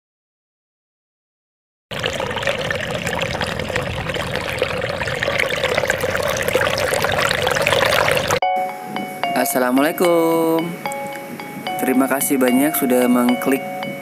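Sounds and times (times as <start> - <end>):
water running in a stream: 1.9 - 8.4.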